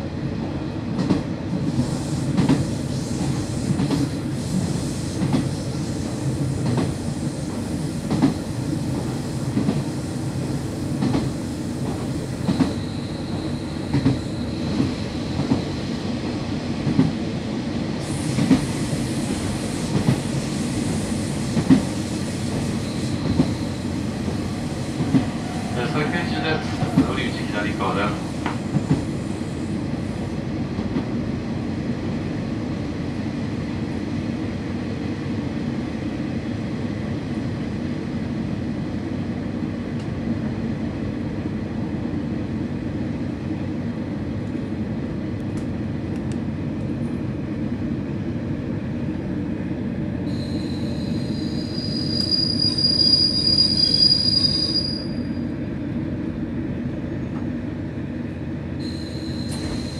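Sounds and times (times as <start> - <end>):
train wheels on rails: 0.4 - 36.2, 58.8 - 59.9
high brake squeal: 12.6 - 15.3, 50.3 - 55.5, 58.8 - 59.9.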